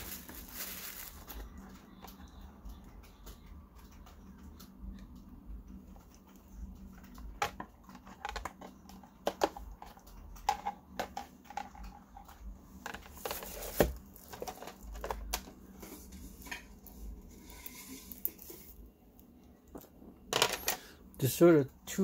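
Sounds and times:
rustling: 0.0 - 1.6.

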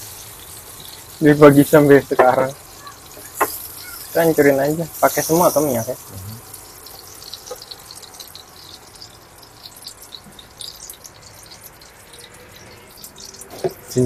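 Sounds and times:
tap water running into sink: 0.7 - 6.0.

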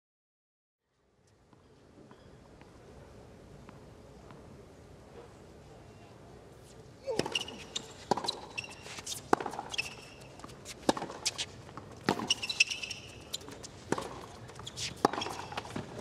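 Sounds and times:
shoes squeaking on court: 6.6 - 16.0
rackets striking tennis ball: 7.0 - 16.0
ball bounces: 7.1 - 8.7, 9.3 - 16.0.

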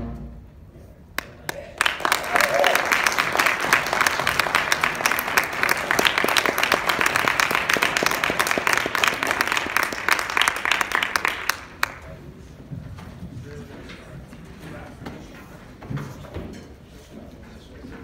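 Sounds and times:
audience applauding: 1.2 - 12.2.

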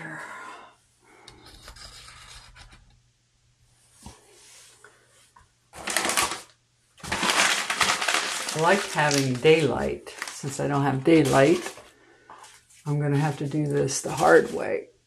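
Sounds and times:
hands rustling a potted plant: 7.0 - 14.8.

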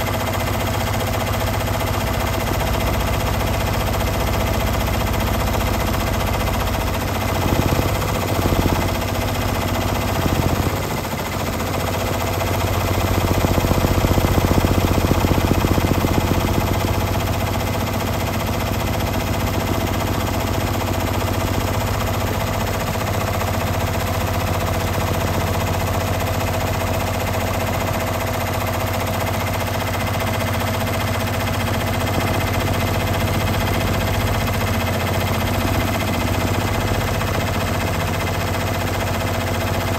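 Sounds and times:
machine hum: 30.0 - 39.4.

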